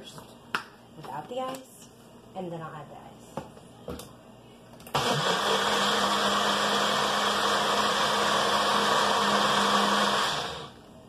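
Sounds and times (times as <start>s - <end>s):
blender running: 4.9s - 10.8s.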